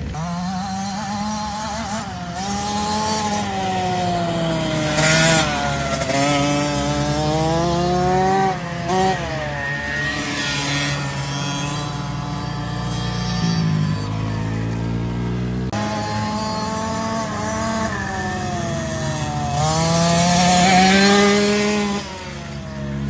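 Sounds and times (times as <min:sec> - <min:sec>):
motocross bike engine revving: 0:00.0 - 0:23.0.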